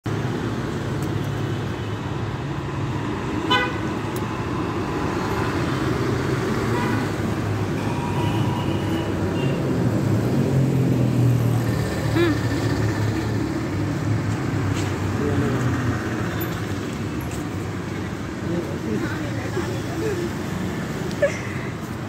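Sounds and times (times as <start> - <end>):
street traffic engines: 0.0 - 22.0
vehicle horn honk: 3.5 - 3.8.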